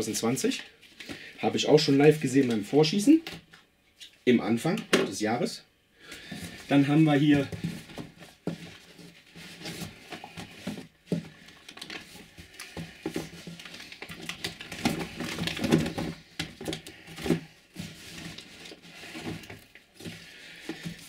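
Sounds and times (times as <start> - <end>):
cardboard rustling and scraping: 6.2 - 21.0.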